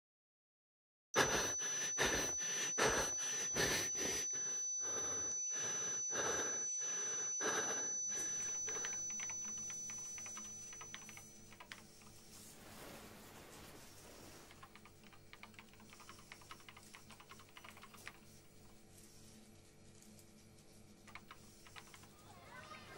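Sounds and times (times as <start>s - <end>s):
man panting in fright: 1.2s - 9.2s
thin high ringing tone: 1.2s - 22.3s.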